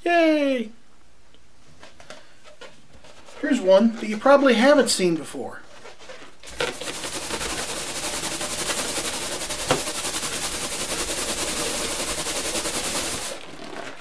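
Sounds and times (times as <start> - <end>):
balloons rubbed on hair squeaking: 5.8 - 14.0.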